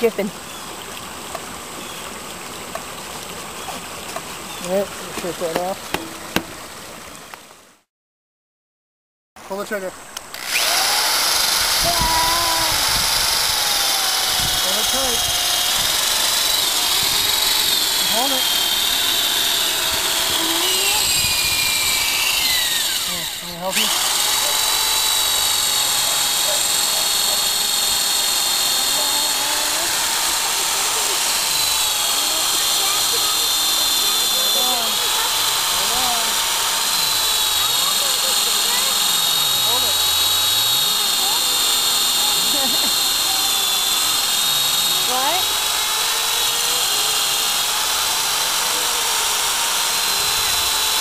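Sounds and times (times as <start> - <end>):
electric drill whining: 10.2 - 51.0.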